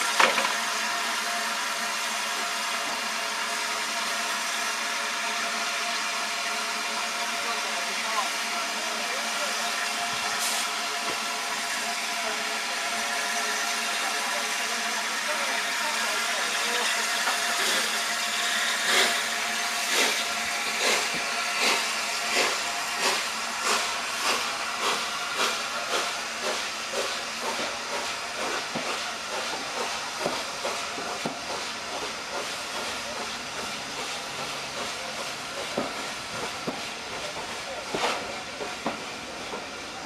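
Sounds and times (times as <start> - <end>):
steam hissing: 0.0 - 40.0
steam locomotive exhaust chuffs: 0.0 - 40.0
train coaches clicking: 16.0 - 40.0.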